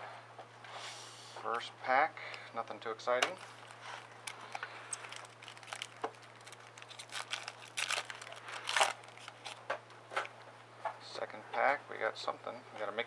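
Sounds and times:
foil wrapper crinkling: 0:03.4 - 0:09.7.

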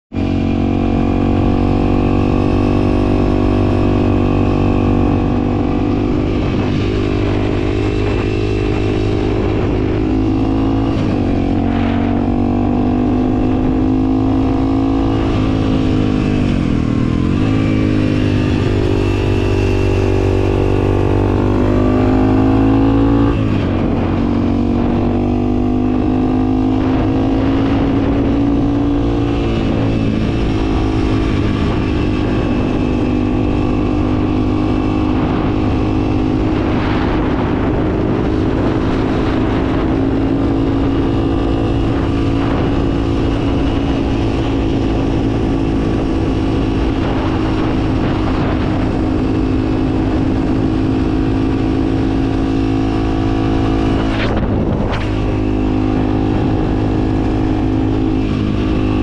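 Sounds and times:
motorcycle engine revving: 0:00.1 - 0:59.0.

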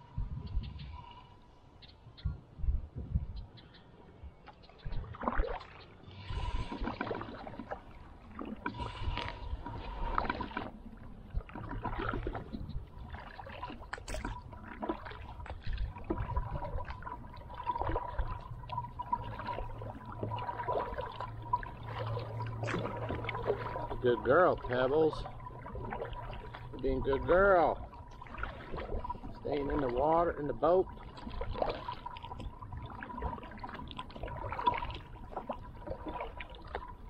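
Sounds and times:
paddle splashing in water: 0:04.4 - 0:37.0.

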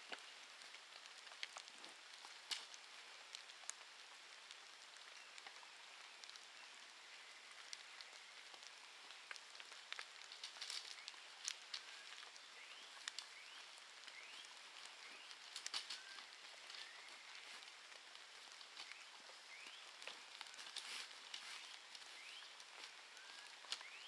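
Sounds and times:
light clicks and crackles: 0:00.0 - 0:24.0
steady high hiss: 0:00.0 - 0:24.0.

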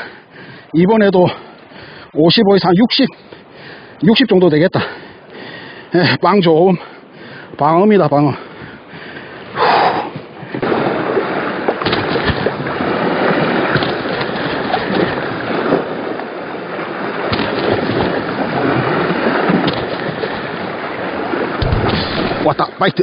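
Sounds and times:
sea water washing against rocks: 0:08.2 - 0:23.0
wind on microphone: 0:08.5 - 0:22.8.

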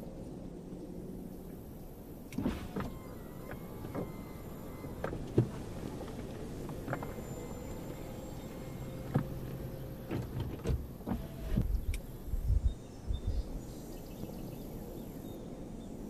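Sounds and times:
roof latch clicks and clunks: 0:02.3 - 0:12.0
electric roof motor whirring: 0:02.4 - 0:12.0.

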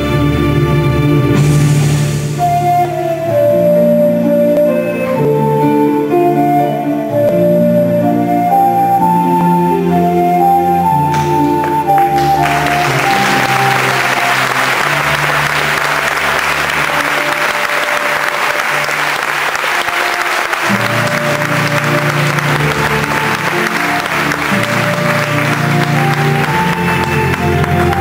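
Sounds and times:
slow instrumental music: 0:00.0 - 0:28.0
audience applauding: 0:10.9 - 0:28.0.

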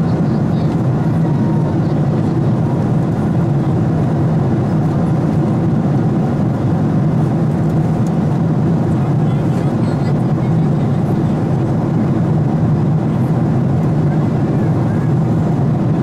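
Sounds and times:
airplane cabin drone: 0:00.0 - 0:16.0.

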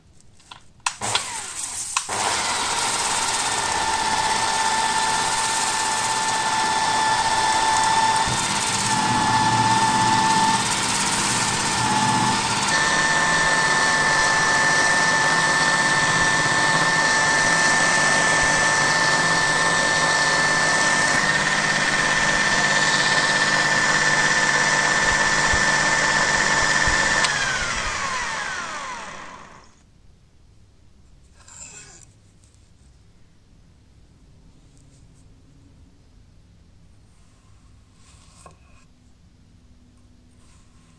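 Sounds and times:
angle grinder whine: 0:01.1 - 0:29.8.

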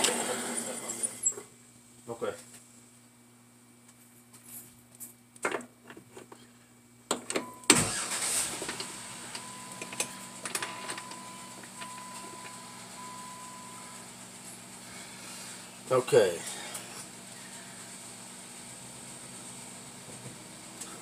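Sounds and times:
machine hum: 0:07.7 - 0:21.0.

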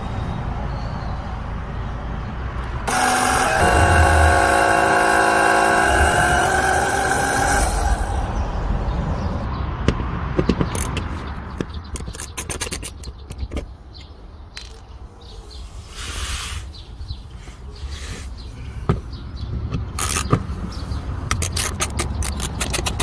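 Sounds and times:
sharp clicks and knocks of tools: 0:09.9 - 0:14.9, 0:21.2 - 0:23.0
hissing scrape: 0:15.6 - 0:16.8.

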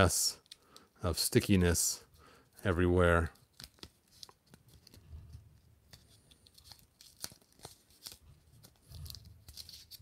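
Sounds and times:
tape tearing and crinkling: 0:06.4 - 0:10.0.

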